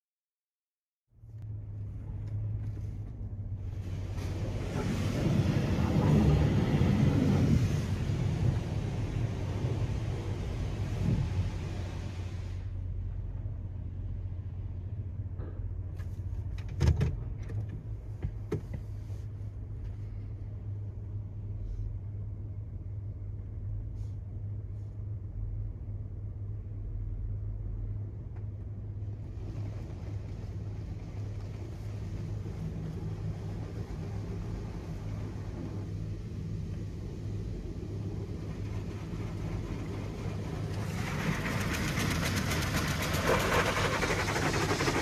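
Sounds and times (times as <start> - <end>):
idling car hum: 1.2 - 45.0
knocks and thump: 15.4 - 18.9.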